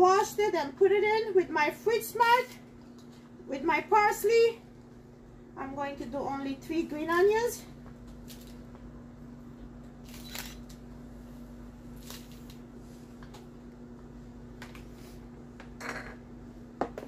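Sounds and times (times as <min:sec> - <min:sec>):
steady low hum: 0:00.0 - 0:17.0
green onions snapping and rustling: 0:12.0 - 0:12.6.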